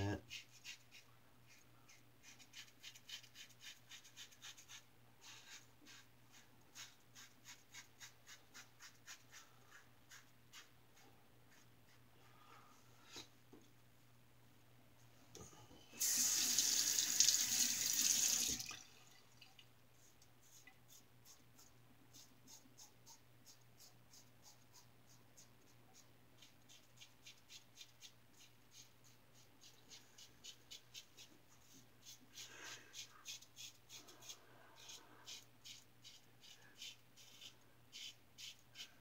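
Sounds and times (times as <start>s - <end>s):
water running from a tap: 16.0s - 18.9s.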